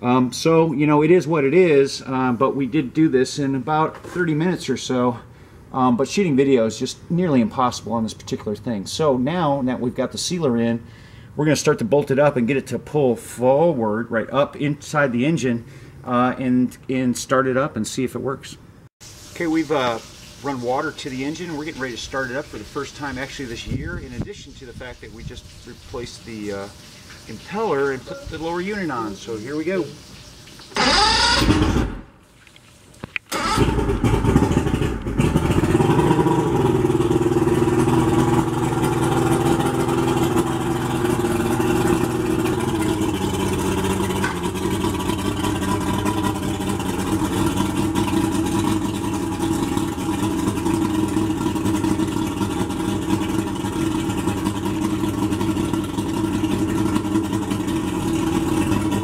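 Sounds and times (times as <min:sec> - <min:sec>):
outboard engine starter cranking: 0:30.7 - 0:32.1, 0:33.3 - 0:59.0
outboard engine idling: 0:33.3 - 0:59.0.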